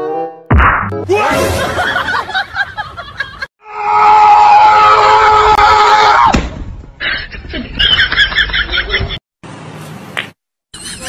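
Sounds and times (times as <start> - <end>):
loud long scream: 3.6 - 6.3.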